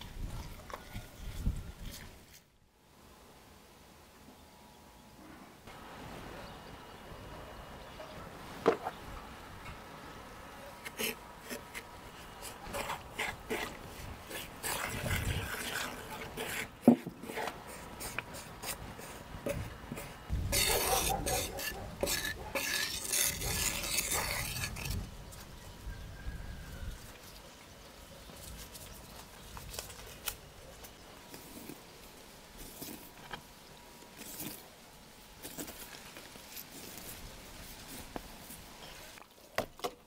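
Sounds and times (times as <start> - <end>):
wooden spoon scraping a bowl: 10.8 - 25.5.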